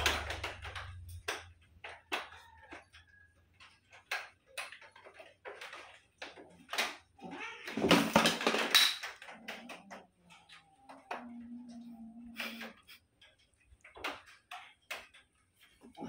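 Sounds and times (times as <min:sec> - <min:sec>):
cats scuffing and claw clicks: 0:00.0 - 0:16.0
cat crying: 0:07.2 - 0:07.8.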